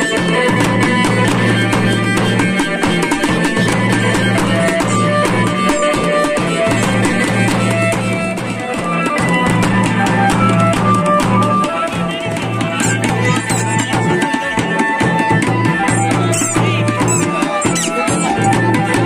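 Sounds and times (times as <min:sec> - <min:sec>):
drums beating dense rhythm: 0:00.0 - 0:19.0.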